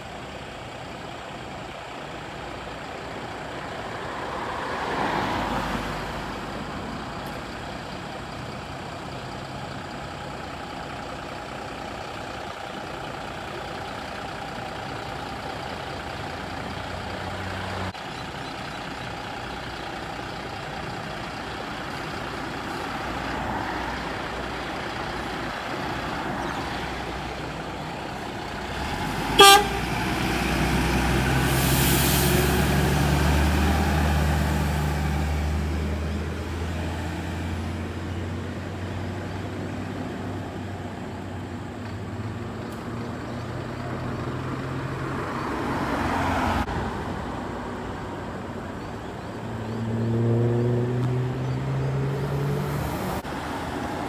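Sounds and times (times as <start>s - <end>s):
fire truck diesel engines: 0.0s - 54.0s
air horn blast: 29.4s - 29.9s.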